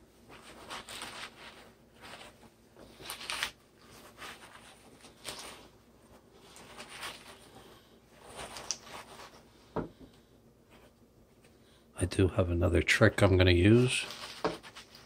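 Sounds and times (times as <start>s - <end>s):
lettuce and paper towel rustling: 0.2s - 9.6s, 13.2s - 15.0s.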